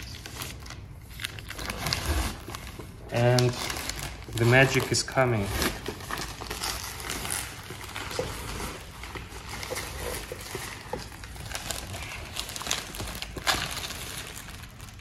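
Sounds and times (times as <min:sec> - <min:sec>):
plastic film crinkling: 0:00.0 - 0:15.0
plastic film peeling crackle: 0:00.0 - 0:15.0.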